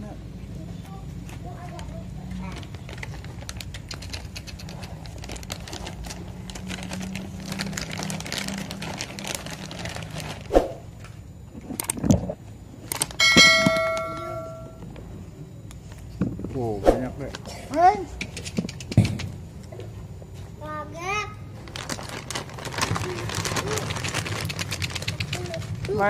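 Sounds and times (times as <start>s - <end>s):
bell-like notification chime: 13.2s - 14.8s.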